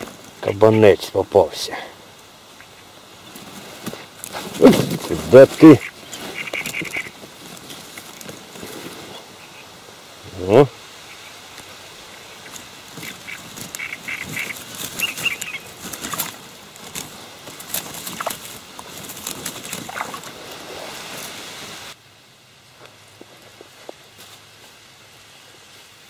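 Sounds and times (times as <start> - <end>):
high calls: 1.2 - 21.1
net rustling: 3.3 - 9.2, 12.4 - 21.4
small water splashes: 17.7 - 21.0.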